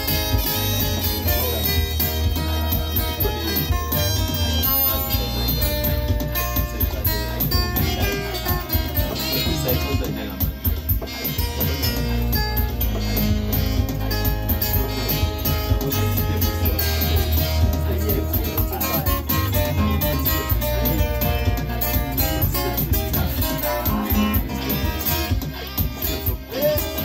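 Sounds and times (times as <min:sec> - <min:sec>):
acoustic guitar: 0:00.0 - 0:27.0
electronic keyboard: 0:00.0 - 0:27.0
steady beat with heavy bass: 0:00.0 - 0:27.0.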